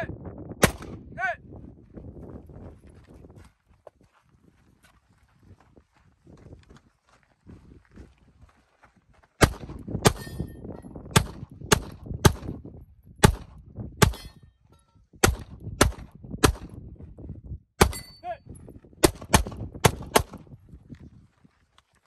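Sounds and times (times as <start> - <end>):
pistol shots hitting steel: 9.4 - 10.6, 13.2 - 14.5, 17.8 - 18.3.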